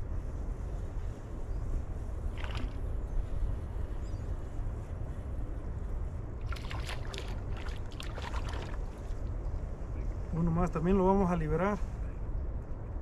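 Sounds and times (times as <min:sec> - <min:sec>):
wind rumbling on microphone: 0:00.0 - 0:13.0
fish splashing in water: 0:06.4 - 0:09.0.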